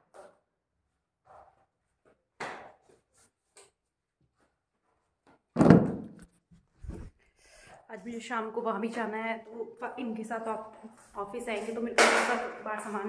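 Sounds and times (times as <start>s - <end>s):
cloth rustles: 6.5s - 7.2s.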